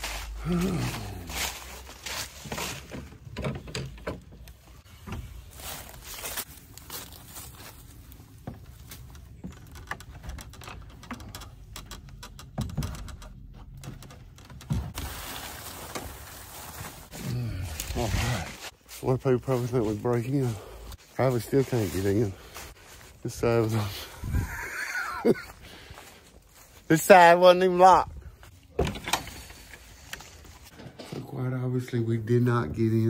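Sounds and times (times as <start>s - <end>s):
rustling: 0.0s - 26.9s
knocks and scrapes on wooden fence: 1.4s - 5.9s.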